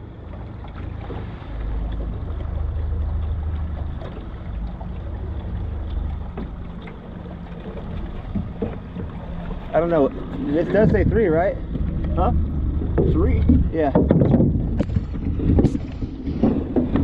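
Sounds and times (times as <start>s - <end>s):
outboard motor humming: 0.0s - 17.0s
wind rumbling on microphone: 0.0s - 17.0s.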